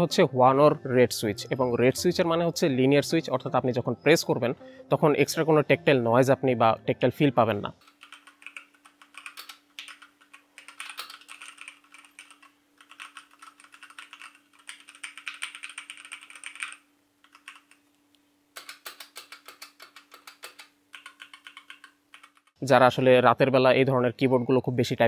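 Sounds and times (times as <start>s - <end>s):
faint steady hum: 0.0s - 25.0s
mechanical keyboard typing: 7.8s - 17.8s, 18.6s - 22.6s.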